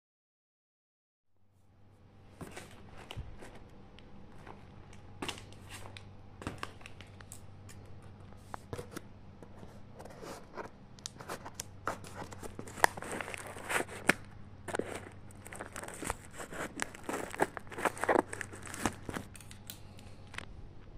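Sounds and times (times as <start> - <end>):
tape and cardboard tearing: 11.3 - 19.5.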